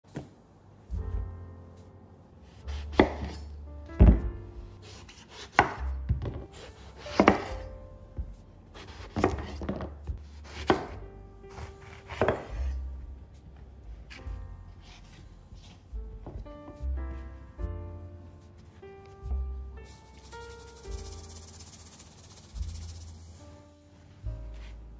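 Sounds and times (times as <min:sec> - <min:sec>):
knife slicing eggplant: 0:02.7 - 0:03.4, 0:06.6 - 0:07.6, 0:08.8 - 0:12.7.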